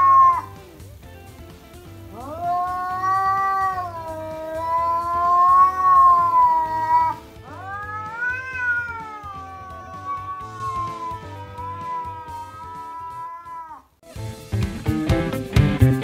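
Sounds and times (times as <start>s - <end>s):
cat yowling: 0.0s - 0.6s, 2.0s - 14.0s.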